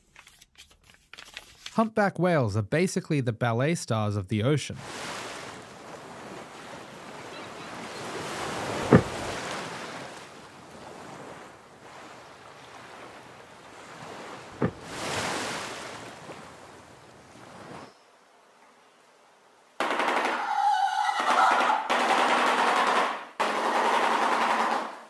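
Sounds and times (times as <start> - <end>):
sea: 4.7 - 21.7
sharp thumps: 8.8 - 9.4, 14.6 - 15.0.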